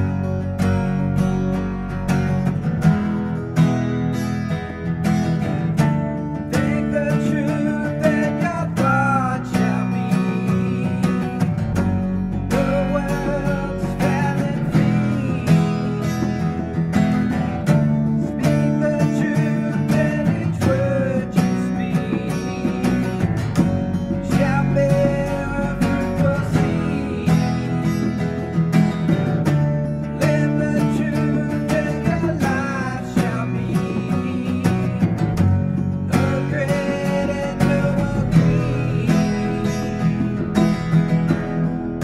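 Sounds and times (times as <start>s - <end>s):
acoustic guitar strumming: 0.0s - 42.0s.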